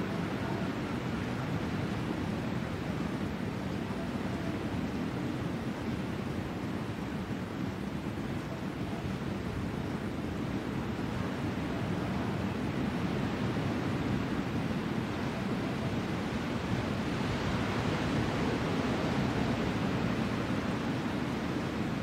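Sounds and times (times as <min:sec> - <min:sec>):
wind on the shore: 0:00.0 - 0:22.0.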